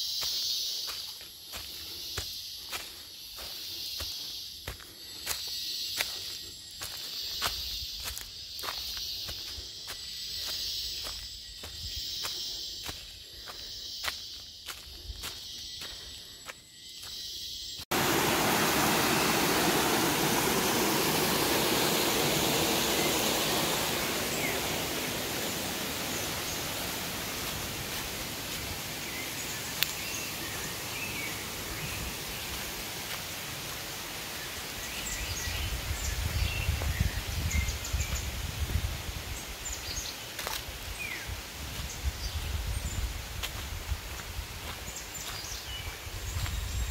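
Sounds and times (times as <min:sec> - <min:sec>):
steady rushing hiss: 0:17.9 - 0:36.8.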